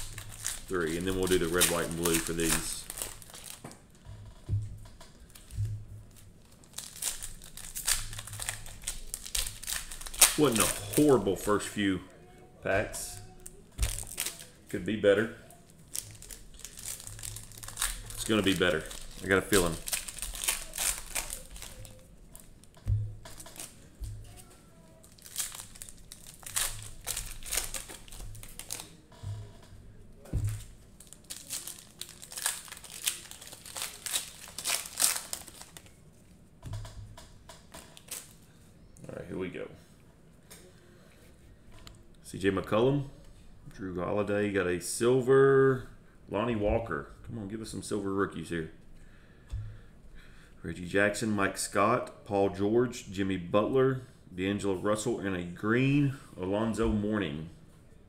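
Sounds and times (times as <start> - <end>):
plastic wrapper crinkling: 0.0 - 4.5, 5.1 - 11.8, 13.0 - 29.6, 30.2 - 36.3, 37.8 - 38.4
low thumps: 4.0 - 6.1, 22.8 - 24.3
low handling thuds: 4.1 - 6.1.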